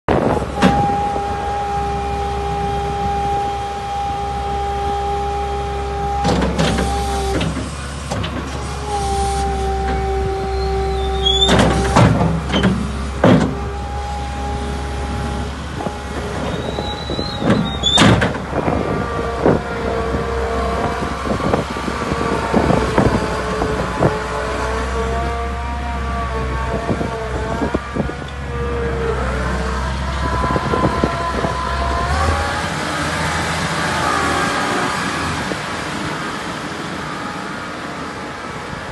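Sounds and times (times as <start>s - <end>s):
diesel engine hum: 0.1s - 38.9s
hydraulics whining: 0.1s - 38.9s.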